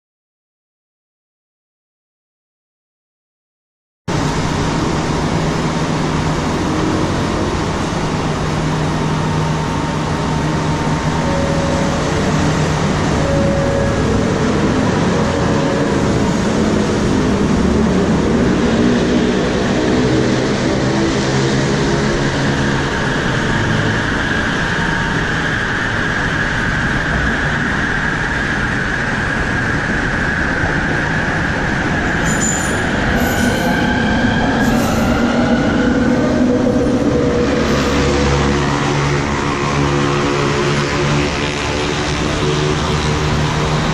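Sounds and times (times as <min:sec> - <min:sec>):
train and station rumble: 0:04.1 - 0:43.9
train motor whine: 0:07.0 - 0:18.2.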